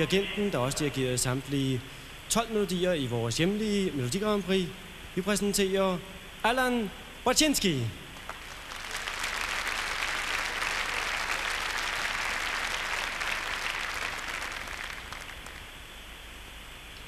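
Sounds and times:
audience applauding: 8.2s - 15.8s.

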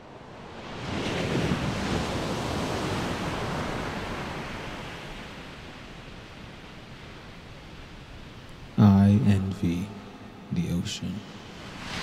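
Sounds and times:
ocean wave surging: 11.2s - 12.0s.

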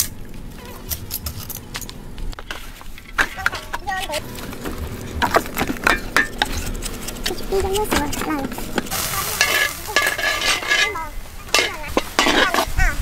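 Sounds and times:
person talking: 7.3s - 10.2s.

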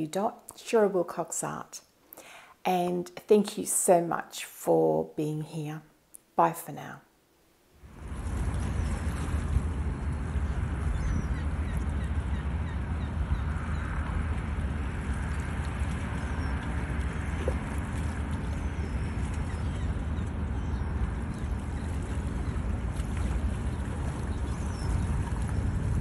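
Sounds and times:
wind: 7.7s - 26.0s
deep rumble: 7.8s - 26.0s
water: 7.8s - 26.0s.

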